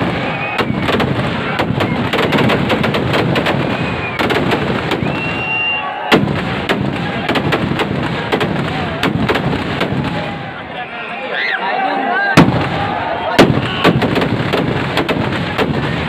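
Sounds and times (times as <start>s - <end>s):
firecrackers banging and crackling: 0.0s - 10.8s, 12.4s - 16.0s
high whistle: 0.1s - 0.8s, 3.6s - 4.2s, 5.0s - 6.1s.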